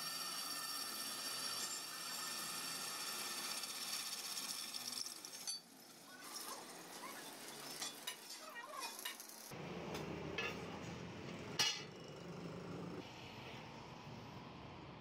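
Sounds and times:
drill press cutting steel: 0:00.0 - 0:06.0.

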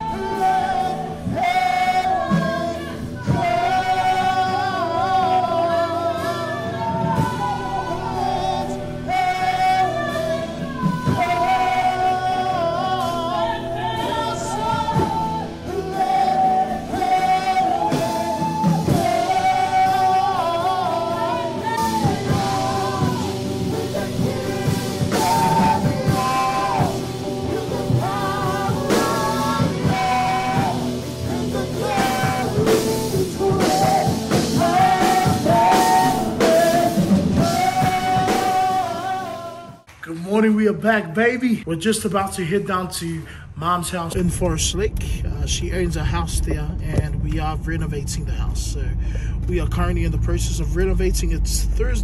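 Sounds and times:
woman singing into microphone: 0:00.0 - 0:39.9
guitar: 0:00.0 - 0:42.5
drums: 0:00.0 - 0:52.0.

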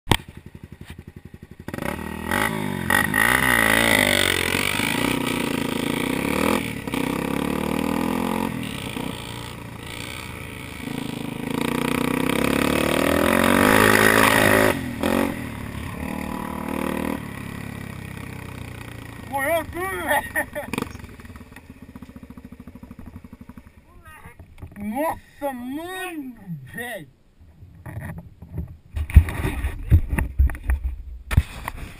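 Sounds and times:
dirt bike engine revving: 0:00.1 - 0:23.9.

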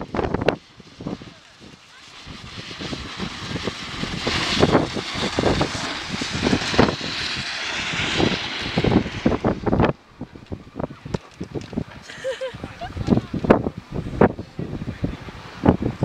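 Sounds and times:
skis sliding over snow: 0:00.0 - 0:09.9
wind on microphone: 0:00.0 - 0:16.0.

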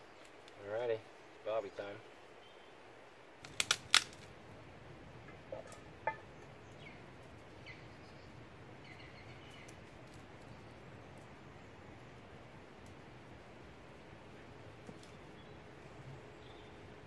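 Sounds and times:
birds chirping faintly: 0:00.0 - 0:03.4, 0:05.1 - 0:17.0
steady outdoor hiss: 0:00.0 - 0:17.0
kindling sticks cracking: 0:03.4 - 0:04.4.

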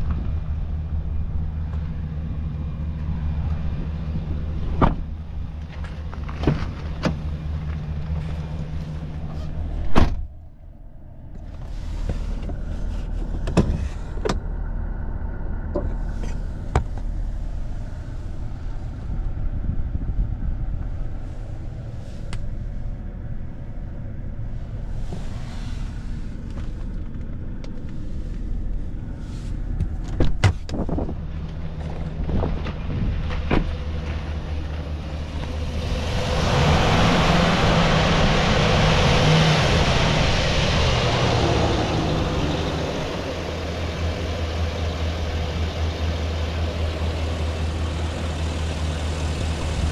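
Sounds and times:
pickup engine idling: 0:30.9 - 0:49.9.

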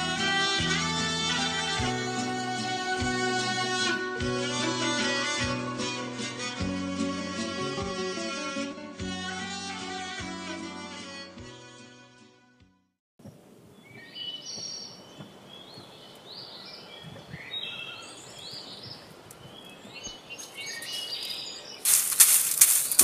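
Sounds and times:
small birds chirping: 0:13.7 - 0:23.0
broom sweeping dried pods: 0:20.8 - 0:23.0.

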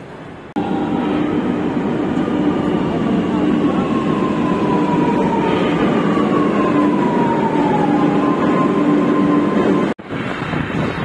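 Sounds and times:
rush of train wheels and air: 0:00.0 - 0:11.0
steady low hum: 0:00.6 - 0:06.9
sliding pitch whine: 0:00.6 - 0:10.3.

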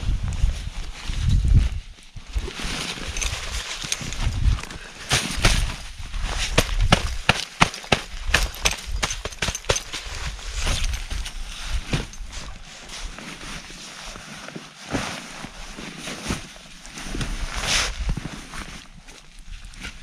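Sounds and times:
tent fabric rustling: 0:00.0 - 0:07.3, 0:08.8 - 0:20.0
sharp clicks and knocks: 0:06.6 - 0:10.0.

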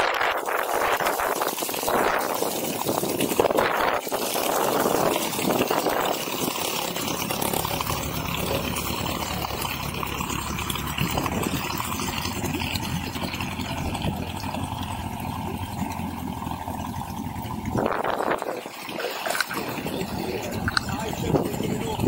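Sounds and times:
boat engine humming: 0:00.0 - 0:22.0.

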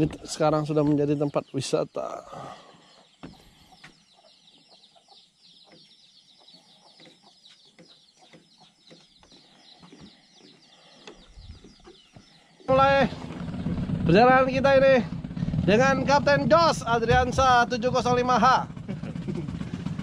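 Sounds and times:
bird chirping: 0:00.0 - 0:14.8.

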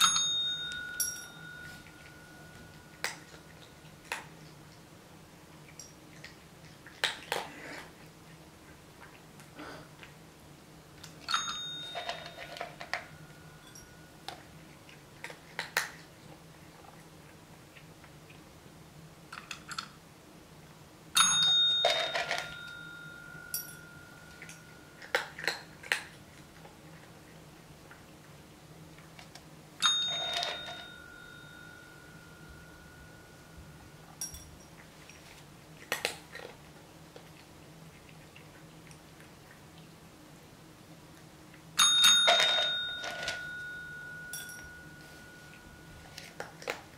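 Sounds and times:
call bell ding: 0:00.0 - 0:03.4, 0:11.3 - 0:14.2, 0:21.2 - 0:24.8, 0:29.8 - 0:34.5, 0:41.8 - 0:46.3
kibble rattling in ceramic bowl: 0:11.3 - 0:14.5, 0:21.7 - 0:22.8, 0:29.9 - 0:31.8, 0:42.0 - 0:43.7.

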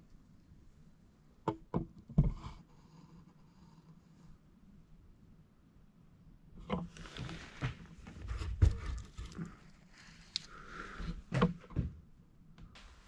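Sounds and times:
rustling: 0:06.9 - 0:10.9.

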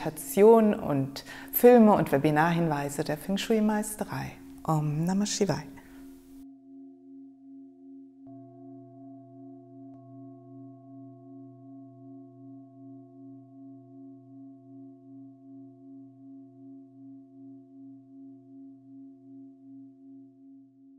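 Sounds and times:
singing bowl ringing: 0:05.8 - 0:20.9.

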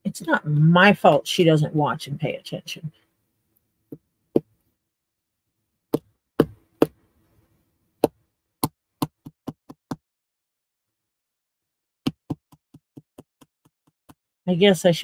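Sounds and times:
plastic toys knocking and tapping: 0:08.0 - 0:10.0.

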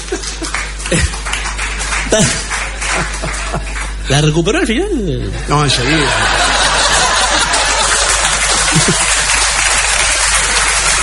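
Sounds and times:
audience applauding: 0:00.0 - 0:04.7, 0:05.8 - 0:11.0.

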